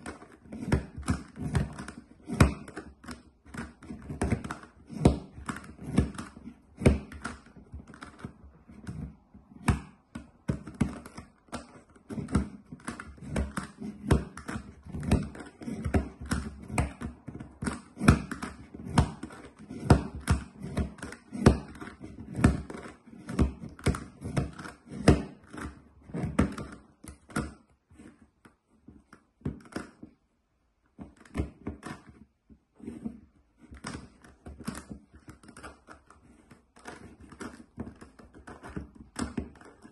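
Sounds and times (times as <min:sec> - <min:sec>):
plastic puzzle clicking as turned: 0:00.0 - 0:09.2, 0:10.1 - 0:30.2, 0:33.6 - 0:39.9.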